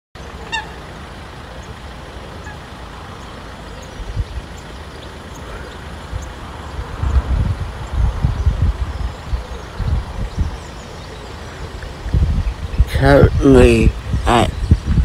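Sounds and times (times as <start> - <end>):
distant road traffic rumble: 0.2 - 15.0
wind gust on microphone: 6.0 - 15.0.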